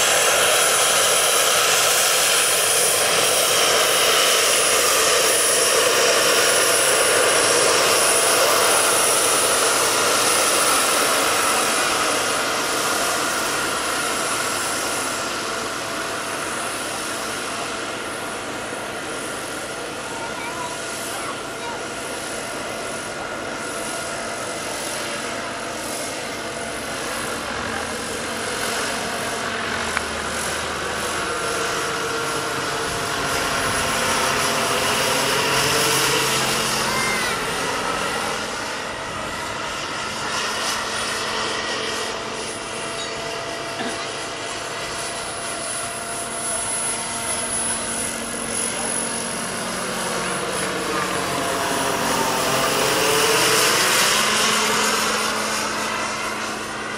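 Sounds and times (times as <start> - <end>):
helicopter rotor noise: 0.0 - 56.9
model turbine engine whine: 0.0 - 56.9.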